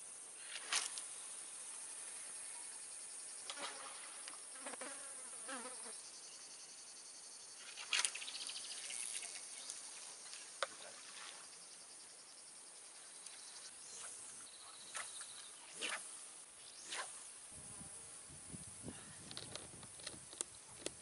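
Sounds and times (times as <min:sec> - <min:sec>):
faint insects buzzing: 0:00.0 - 0:21.0
fishing rod cast swish: 0:14.9 - 0:16.1, 0:16.8 - 0:17.2.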